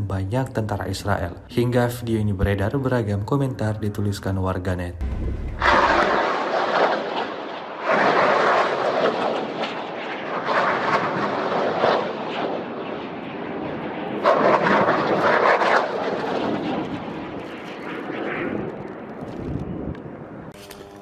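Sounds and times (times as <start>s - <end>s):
rockets launching roar: 5.0s - 20.6s.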